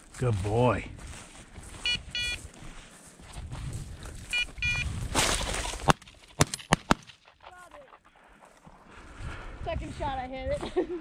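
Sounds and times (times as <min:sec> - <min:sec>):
footsteps crunching: 0:00.0 - 0:10.9
electronic beeper collar beeping: 0:01.8 - 0:02.4, 0:04.3 - 0:04.9.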